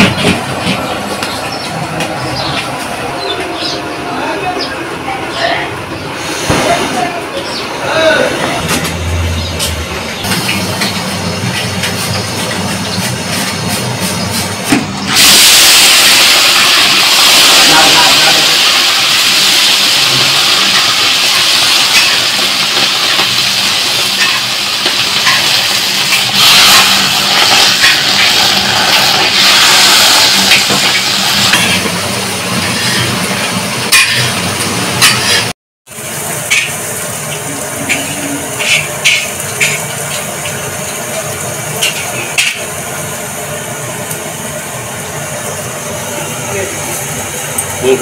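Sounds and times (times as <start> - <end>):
low hum: 8.3 - 13.6
vegetables sizzling in hot oil: 10.3 - 47.4.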